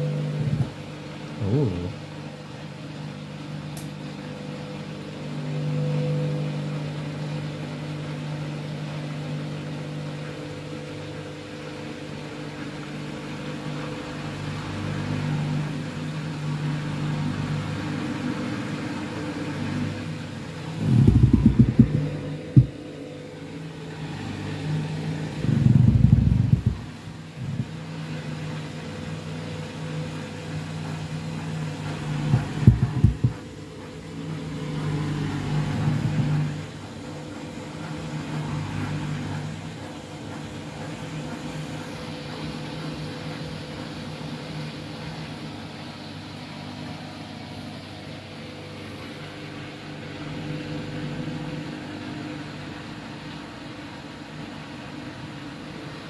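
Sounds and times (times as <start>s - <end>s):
washing machine motor humming: 0.0s - 56.0s
drum churning wet load: 20.3s - 52.1s.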